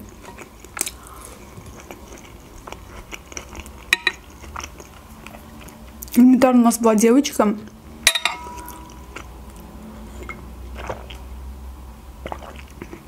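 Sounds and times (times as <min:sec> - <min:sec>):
chewing food: 0:00.0 - 0:06.2, 0:08.6 - 0:11.3, 0:12.2 - 0:13.0
metal fork clinking on plate: 0:04.0 - 0:04.2, 0:08.1 - 0:09.0.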